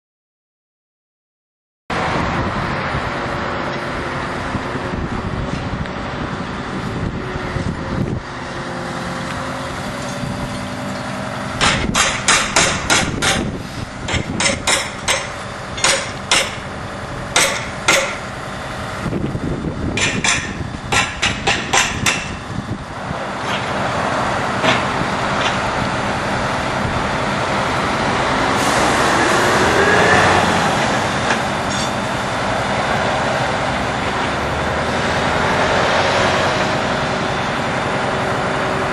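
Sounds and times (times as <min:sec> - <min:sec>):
engine running steadily: 0:01.9 - 0:38.9
sharp hammer blows: 0:11.6 - 0:16.7, 0:17.4 - 0:18.3.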